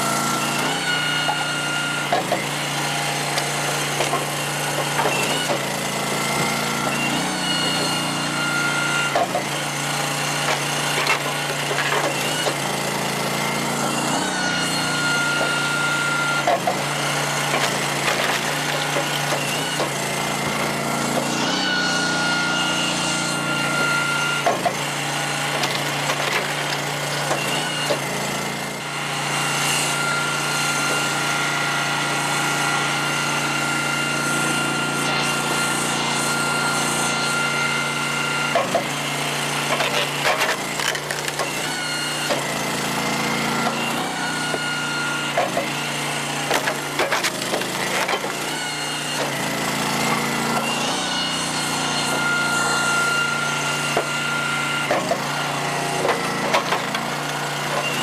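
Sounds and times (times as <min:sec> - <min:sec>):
hydraulic whine: 0:00.0 - 0:58.0
log splitter engine running: 0:00.0 - 0:58.0
wood cracking and splitting: 0:01.2 - 0:08.3, 0:09.1 - 0:21.4, 0:23.8 - 0:28.3, 0:38.6 - 0:51.0, 0:56.0 - 0:58.0
split wood pieces dropping: 0:46.5 - 0:48.4.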